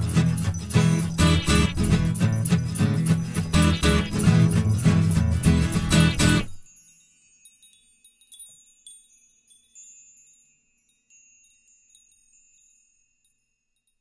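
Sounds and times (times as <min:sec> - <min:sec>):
high-pitched chimes tinkling: 0:00.0 - 0:14.0.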